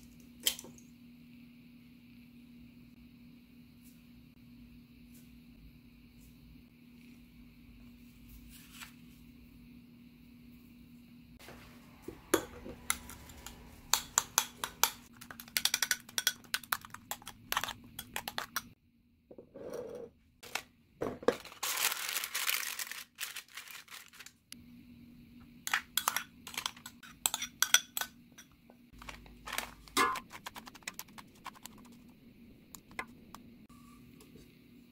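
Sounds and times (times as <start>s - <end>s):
spoon scraping and stirring: 15.2s - 18.7s, 25.7s - 32.1s
metal spoon clinking on bowl: 26.0s - 28.5s.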